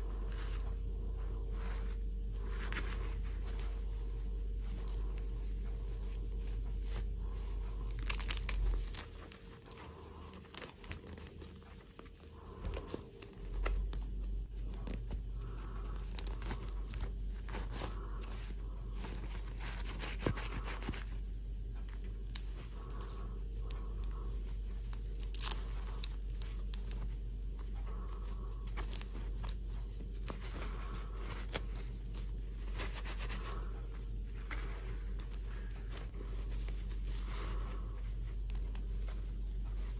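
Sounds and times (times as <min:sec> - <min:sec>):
steady low hum: 0:00.0 - 0:39.9
cloth dress rustling: 0:01.4 - 0:14.6
small clicks and scrapes: 0:04.6 - 0:39.9.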